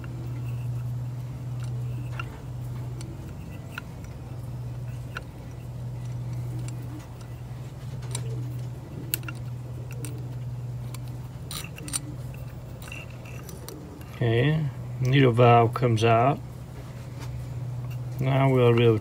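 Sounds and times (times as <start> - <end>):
small metallic clicks: 0.0 - 14.3
low hum: 0.0 - 19.0.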